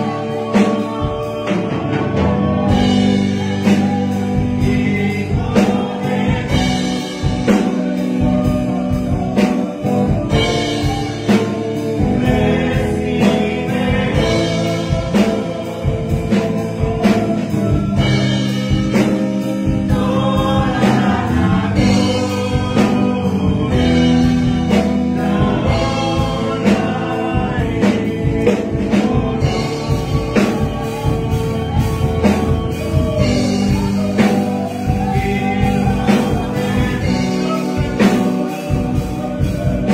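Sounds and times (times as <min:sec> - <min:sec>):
man singing into a microphone: 0:00.0 - 0:39.9
steady drum beat: 0:00.0 - 0:39.9.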